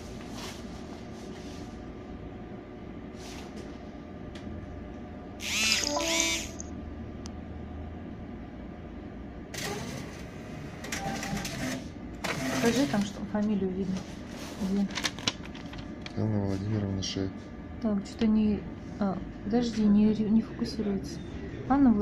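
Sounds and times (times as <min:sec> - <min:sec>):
steady machine hum: 0:00.0 - 0:22.0
receipt printer printing: 0:09.6 - 0:13.2.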